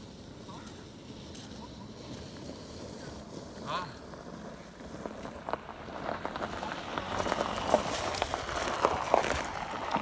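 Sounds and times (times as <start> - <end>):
hiss: 0.0 - 4.0.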